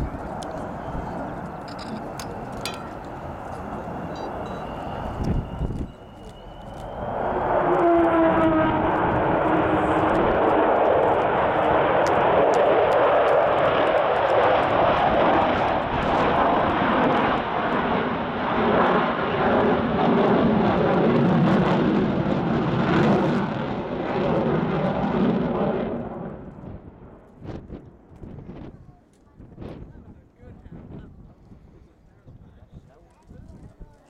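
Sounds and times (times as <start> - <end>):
loud jet roar: 0.0 - 27.1.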